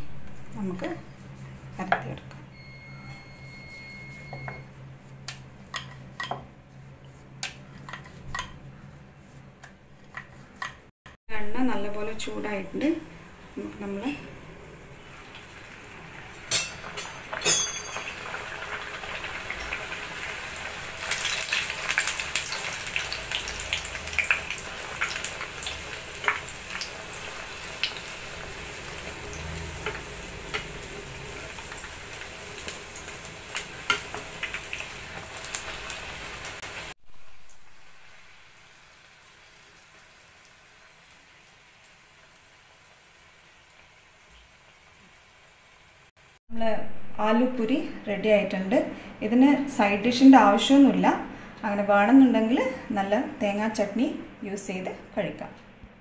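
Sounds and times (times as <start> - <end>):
oil sizzling and crackling: 11.8 - 46.4.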